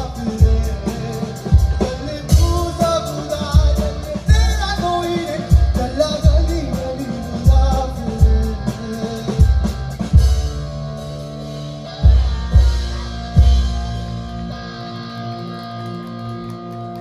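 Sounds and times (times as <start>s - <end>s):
man singing: 0.0s - 10.2s
live rock band playing: 0.0s - 17.0s.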